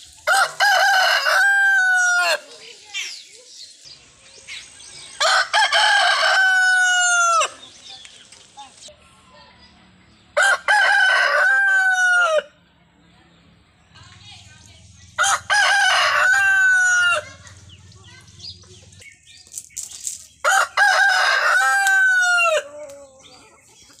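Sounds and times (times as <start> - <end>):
roosters crowing: 0.1 - 2.6, 5.1 - 7.8, 10.4 - 12.6, 15.1 - 17.8, 20.4 - 24.0.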